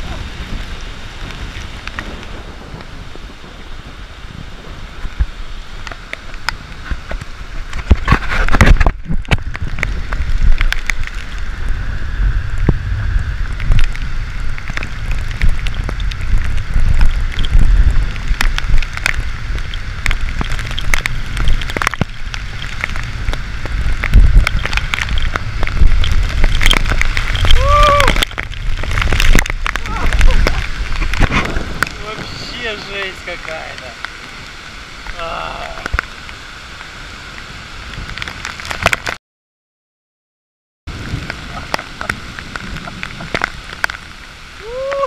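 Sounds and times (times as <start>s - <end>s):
wind buffeting microphone: 0.0s - 38.9s, 40.9s - 45.0s
heavy rain falling: 0.0s - 39.2s, 40.9s - 45.0s
raindrops clicking on camera: 0.0s - 39.2s, 40.9s - 45.0s.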